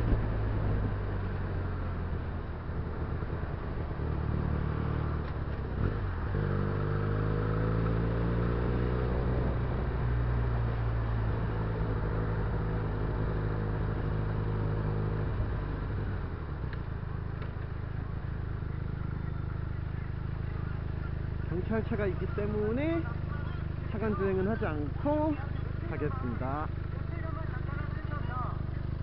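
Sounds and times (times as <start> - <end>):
road noise rushing: 0.0 - 29.0.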